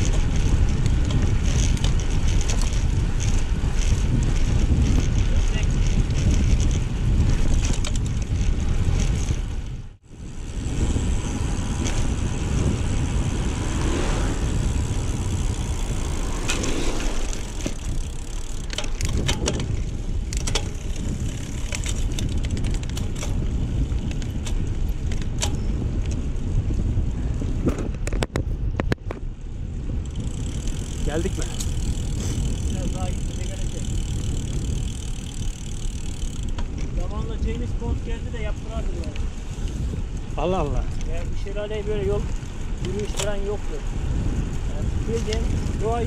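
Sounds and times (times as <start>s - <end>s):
bike tyres rumbling on road: 0.0s - 46.0s
wind rushing over microphone: 0.0s - 46.0s.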